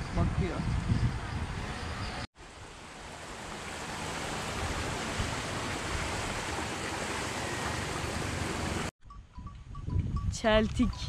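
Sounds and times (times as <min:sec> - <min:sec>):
water rushing in channel: 0:02.4 - 0:08.9.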